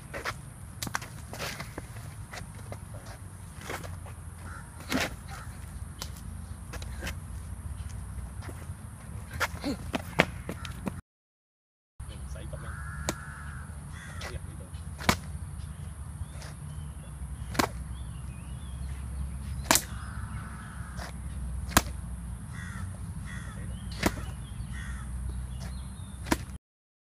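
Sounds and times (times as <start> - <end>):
birds calling: 0.0 - 11.0, 12.0 - 26.6
hand slaps on a body: 19.6 - 19.9.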